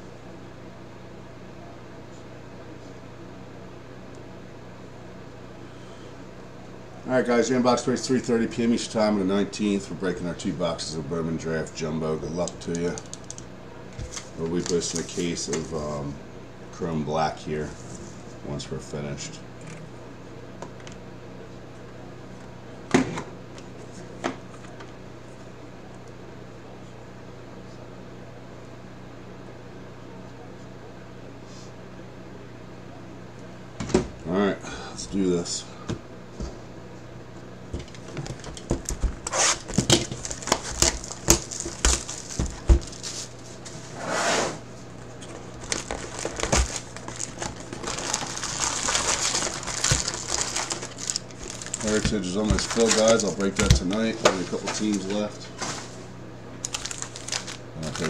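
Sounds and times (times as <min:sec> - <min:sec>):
steady low hum: 0:00.0 - 0:58.0
shrink wrap crinkling and tearing: 0:12.4 - 0:15.5, 0:37.9 - 0:43.4, 0:45.2 - 0:55.2, 0:56.6 - 0:58.0
foil packs crinkling: 0:14.0 - 0:15.7, 0:37.8 - 0:43.5, 0:45.0 - 0:56.0, 0:56.6 - 0:58.0.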